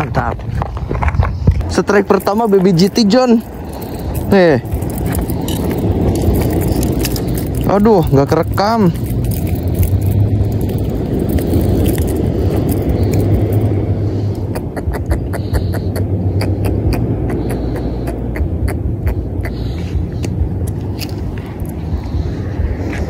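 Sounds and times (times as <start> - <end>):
steady low rumble: 0.0 - 23.0.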